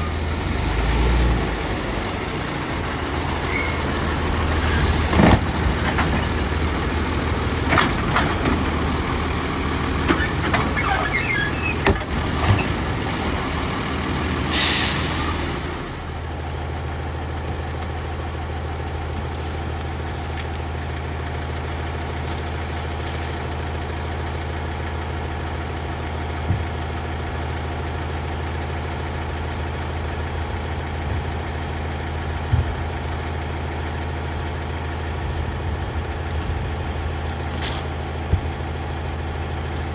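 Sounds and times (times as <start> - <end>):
diesel engine idling: 0.0 - 39.9
air hiss: 14.5 - 15.5.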